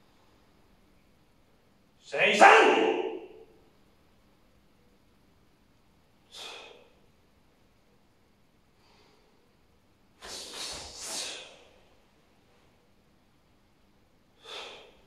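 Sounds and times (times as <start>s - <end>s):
forceful exhales: 6.3s - 7.0s, 10.2s - 11.8s, 14.4s - 15.0s.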